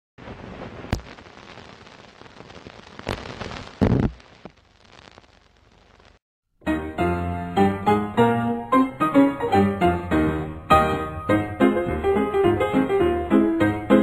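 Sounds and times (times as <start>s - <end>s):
old film crackle and hiss: 0.2s - 6.2s
pops and clicks: 0.7s - 1.7s, 2.4s - 5.3s
piano music: 6.6s - 14.0s.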